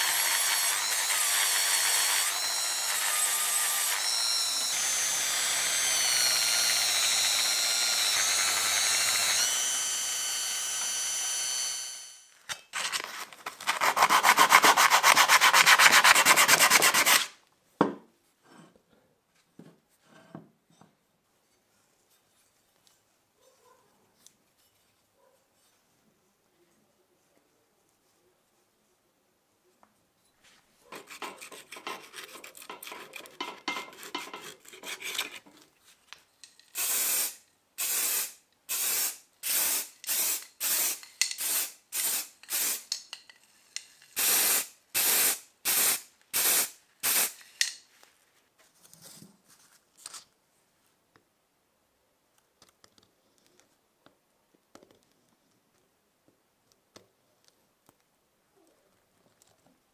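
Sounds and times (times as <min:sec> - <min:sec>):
knife scraping: 0:30.9 - 0:35.7
aerosol spray can hissing: 0:36.8 - 0:43.0, 0:44.2 - 0:47.6.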